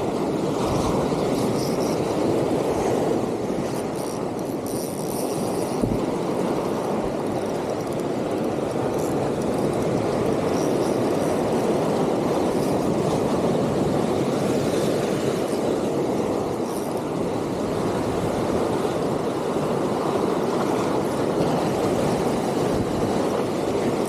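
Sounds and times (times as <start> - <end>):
surf washing on shore: 0.0 - 24.0
wind on microphone: 0.0 - 24.0.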